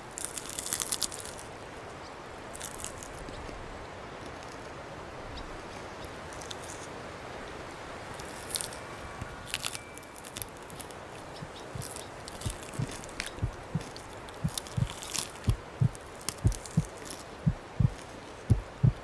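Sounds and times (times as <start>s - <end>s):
petals clicking and crunching: 0.0s - 1.6s, 2.5s - 3.6s, 6.1s - 6.9s, 8.1s - 19.0s
steady background hiss: 0.0s - 19.0s.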